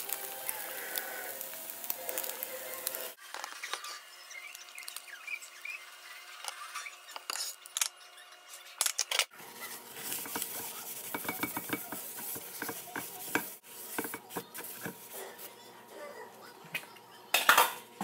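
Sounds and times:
paper towel scrubbing a skillet: 9.4 - 15.5.

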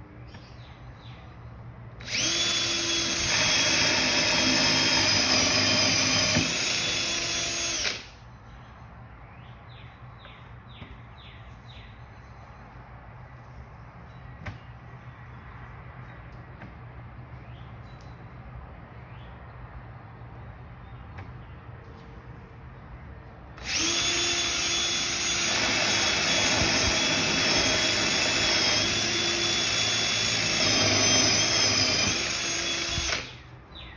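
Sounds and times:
cordless drill whining through wood: 2.0 - 8.2, 23.6 - 33.5.

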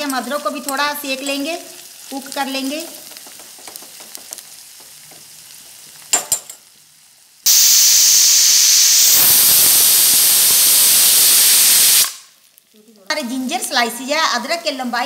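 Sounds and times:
onions sizzling in butter: 0.0 - 15.0
pressure cooker steam hissing: 7.5 - 12.3.

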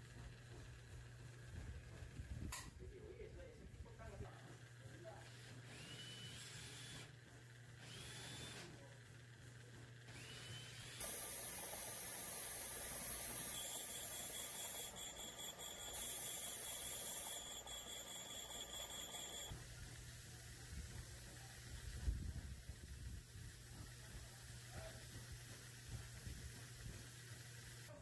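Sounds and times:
valve grinding machine: 10.2 - 19.5.

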